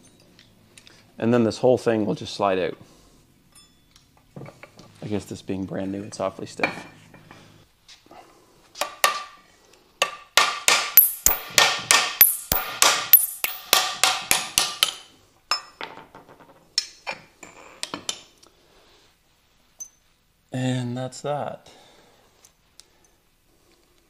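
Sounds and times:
hammer striking metal: 10.4s - 14.9s.

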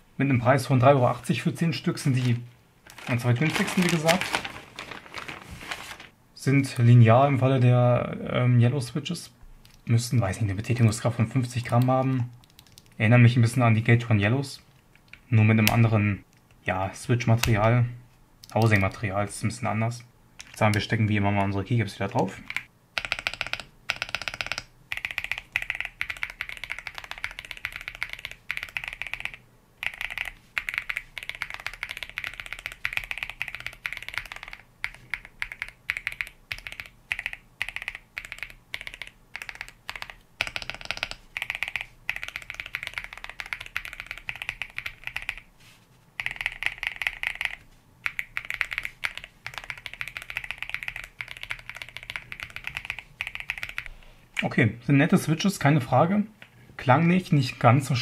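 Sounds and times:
mechanical keyboard typing: 11.6s - 13.0s, 22.4s - 45.5s, 46.2s - 53.9s.

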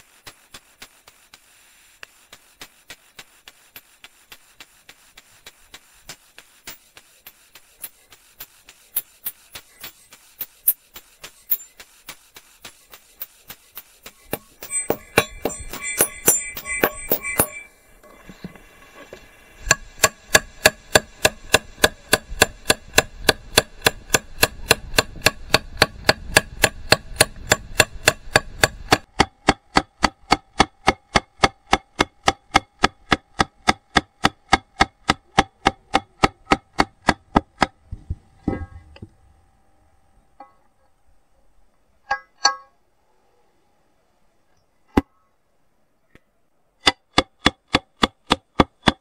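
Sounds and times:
hammer tapping metal: 14.0s - 17.7s, 19.7s - 37.8s, 42.0s - 42.8s.

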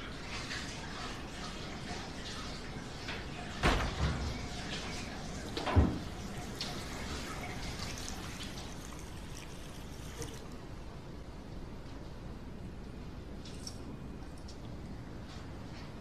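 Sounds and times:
kitchen tap running into sink: 0.4s - 10.6s
front door thudding shut: 3.6s - 4.4s.

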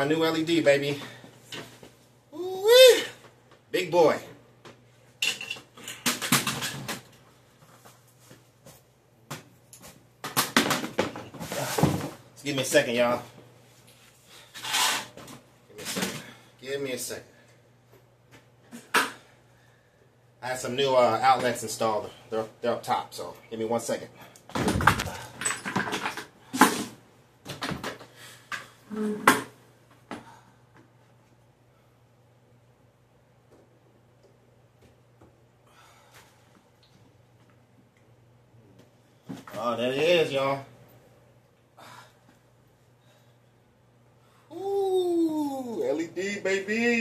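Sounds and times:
objects knocking and clattering: 24.5s - 26.7s.

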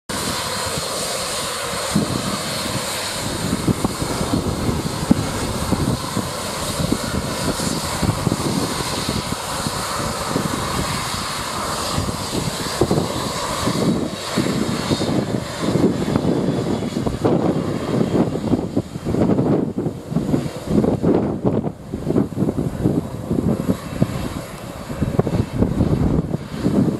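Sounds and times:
jet engines hissing and whining: 0.1s - 26.9s.

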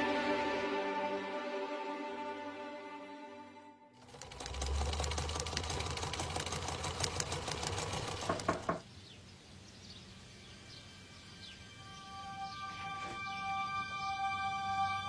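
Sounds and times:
sewing machine stitching: 4.0s - 8.8s.

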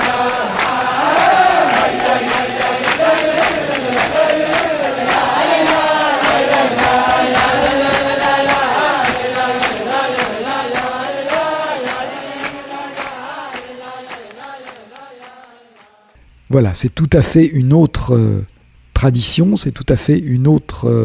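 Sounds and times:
steady beat: 0.0s - 15.5s
group singing wordless melody: 0.0s - 16.2s.

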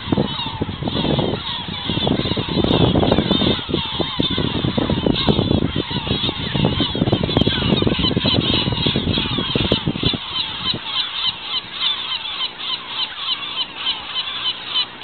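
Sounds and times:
low rumble on microphone: 0.0s - 11.0s
seagulls crying: 0.0s - 15.0s.

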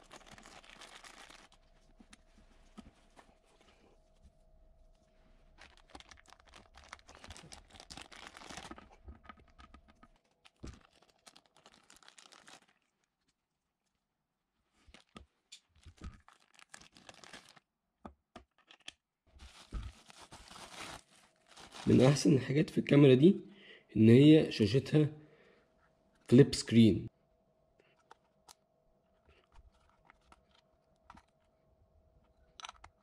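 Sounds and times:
plastic bags crinkling: 0.0s - 2.0s, 5.5s - 13.1s, 14.8s - 17.7s, 19.3s - 22.3s.

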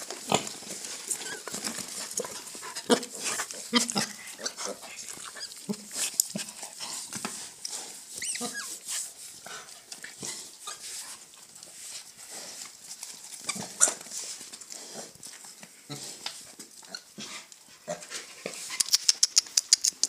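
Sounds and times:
rustling: 0.0s - 20.0s
piglets squeaking and grunting: 0.2s - 7.0s, 8.1s - 8.9s, 13.2s - 14.1s
piglet high squeal: 8.2s - 8.8s.

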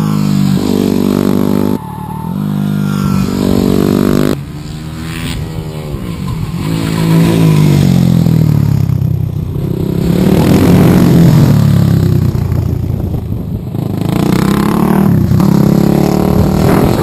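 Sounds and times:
motorcycle engines revving: 0.0s - 17.0s.

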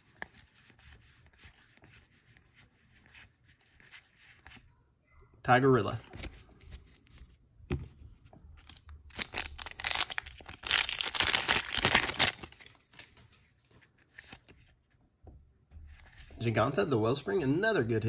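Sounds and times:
cards being handled: 0.0s - 4.7s, 5.9s - 15.0s
foil wrapper tearing and crinkling: 8.6s - 12.8s.

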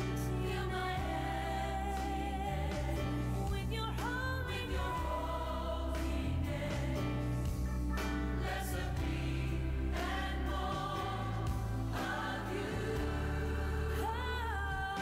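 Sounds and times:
gospel choir singing: 0.0s - 15.0s
lead singer: 0.0s - 15.0s
low bass notes: 4.4s - 14.8s.

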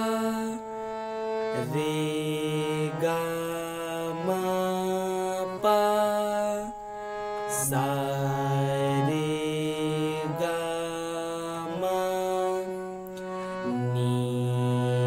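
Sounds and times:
harmonium reed tones: 0.0s - 15.0s.

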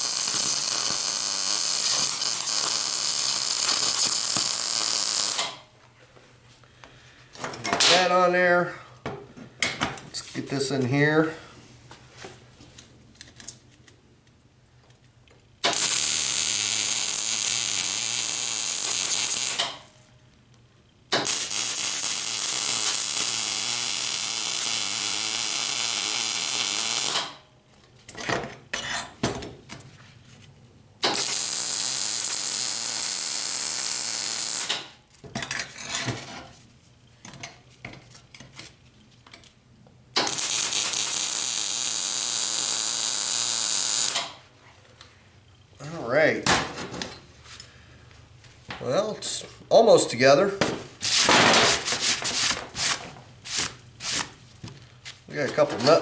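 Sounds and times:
sputtering welding bursts: 0.0s - 5.6s, 15.6s - 19.8s, 21.1s - 27.4s, 31.0s - 34.8s, 40.2s - 44.3s
welder arc crackling: 0.0s - 5.6s, 15.6s - 19.8s, 21.1s - 27.4s, 31.0s - 34.8s, 40.2s - 44.4s.

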